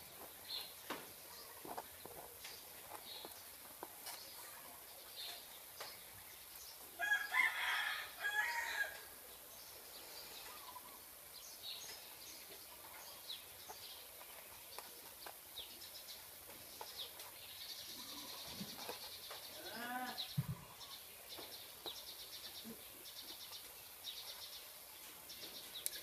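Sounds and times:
rooster crowing: 0:07.0 - 0:09.1.

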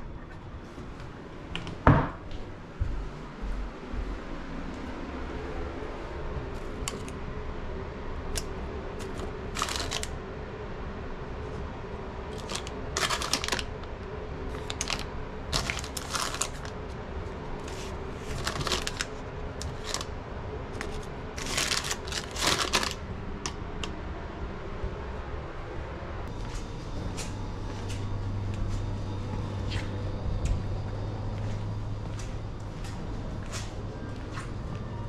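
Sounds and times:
faint hum: 0:00.0 - 0:35.0
plastic packets crinkling: 0:08.4 - 0:10.2, 0:12.3 - 0:13.9, 0:14.5 - 0:16.9, 0:17.6 - 0:20.1, 0:20.8 - 0:23.0.

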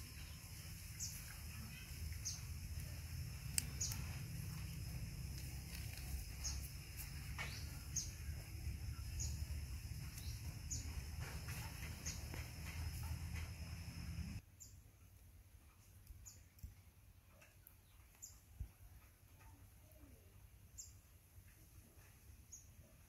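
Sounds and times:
small bird chirping: 0:00.0 - 0:14.8, 0:16.1 - 0:16.7, 0:17.4 - 0:23.0
steady low rumble: 0:02.0 - 0:14.4.

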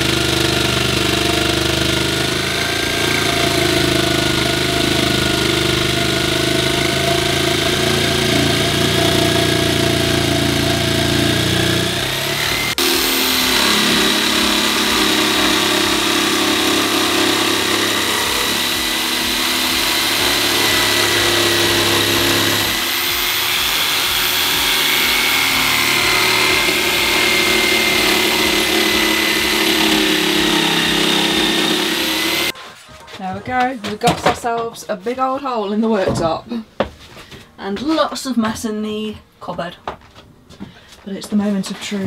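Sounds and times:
electric jigsaw cutting wood: 0:00.0 - 0:32.6.

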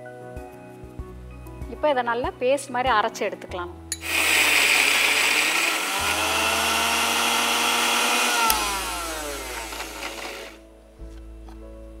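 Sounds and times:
electric mixer grinder running: 0:04.0 - 0:10.6
mixer switch click: 0:08.3 - 0:10.4.

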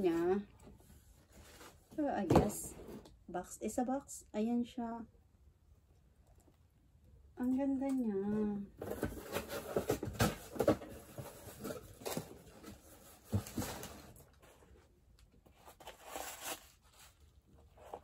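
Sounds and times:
cardboard and paper rustling: 0:08.8 - 0:18.0.

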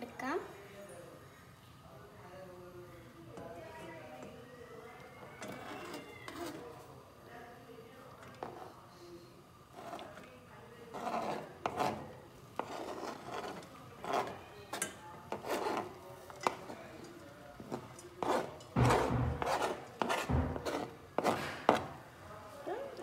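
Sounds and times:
knife scraping cutting board: 0:05.4 - 0:06.7, 0:09.7 - 0:10.2, 0:10.9 - 0:16.8, 0:17.6 - 0:22.0.

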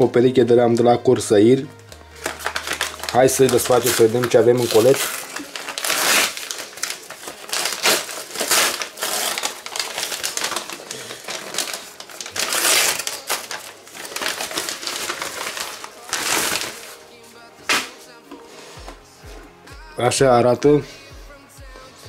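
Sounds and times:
package being handled: 0:01.7 - 0:19.0
paper envelope crinkling: 0:01.8 - 0:18.6.

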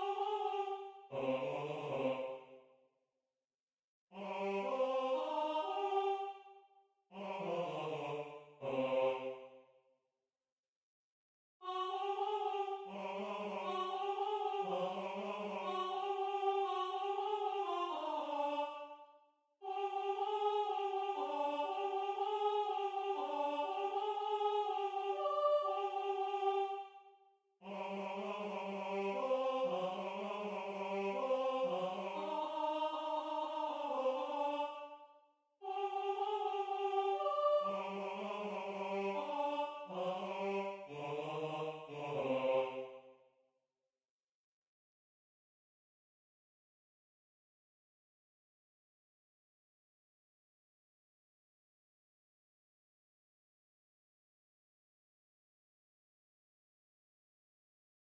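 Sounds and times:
two-part a cappella singing: 0:00.0 - 0:02.8, 0:04.1 - 0:09.6, 0:11.6 - 0:43.2.

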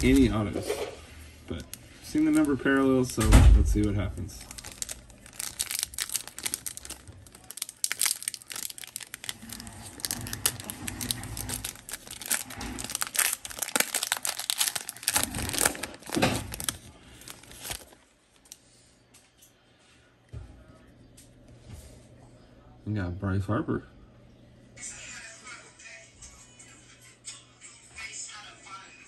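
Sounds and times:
plastic wrapper tearing and crinkling: 0:00.0 - 0:00.4, 0:01.5 - 0:18.6.

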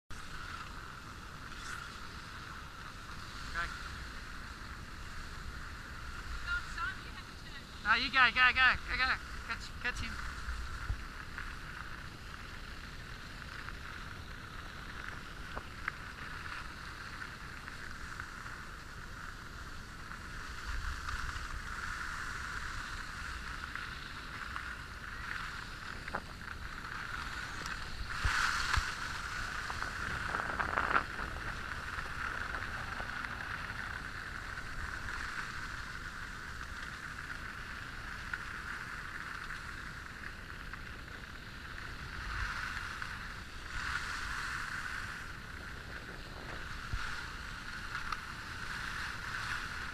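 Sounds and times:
skis sliding over snow: 0:00.1 - 0:49.9
wind on microphone: 0:09.2 - 0:36.8, 0:40.6 - 0:49.9.

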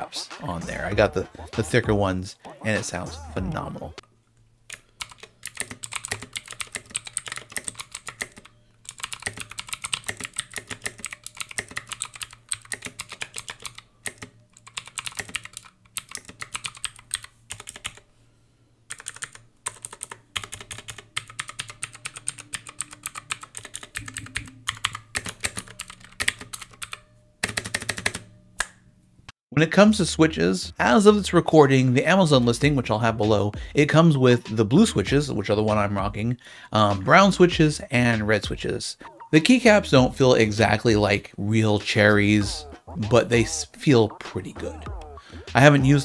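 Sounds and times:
clicky mechanical keyboard typing: 0:04.7 - 0:18.0, 0:18.9 - 0:28.3.

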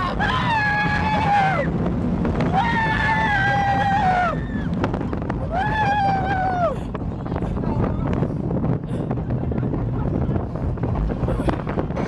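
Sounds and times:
riders screaming: 0:00.0 - 0:01.8, 0:02.4 - 0:04.8
roller coaster train rumble: 0:00.0 - 0:12.0
wind buffeting microphone: 0:00.0 - 0:12.0.

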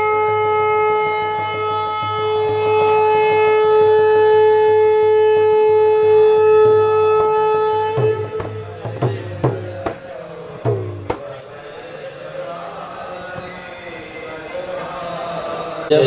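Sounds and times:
conch shell blown: 0:00.0 - 0:09.6.

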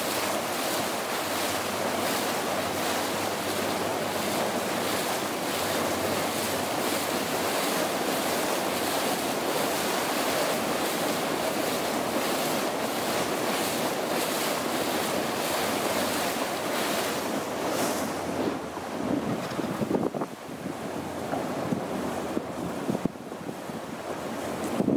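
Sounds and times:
churning wake water: 0:00.0 - 0:24.9
wind buffeting microphone: 0:17.0 - 0:24.9.

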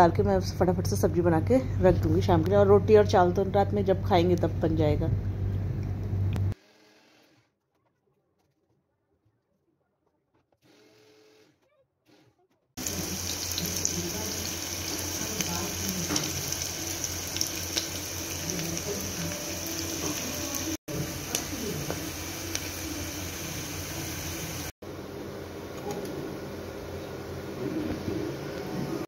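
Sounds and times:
onion sizzling in hot oil: 0:12.8 - 0:24.7.

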